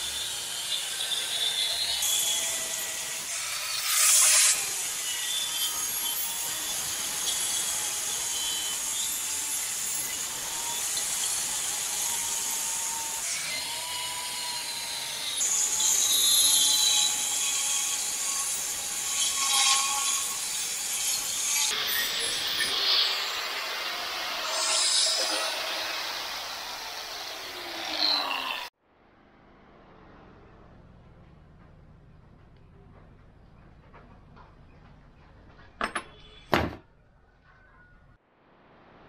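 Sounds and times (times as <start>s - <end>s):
angle grinder cutting steel: 0.0s - 28.7s.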